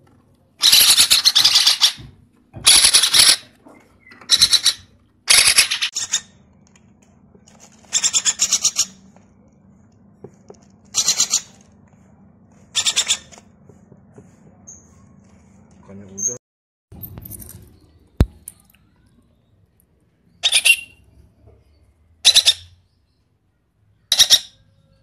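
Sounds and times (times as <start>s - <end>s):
parakeet chicks begging calls: 4.0s - 6.2s, 7.8s - 9.0s, 10.9s - 11.6s, 12.7s - 13.4s, 22.2s - 22.7s, 24.1s - 24.5s.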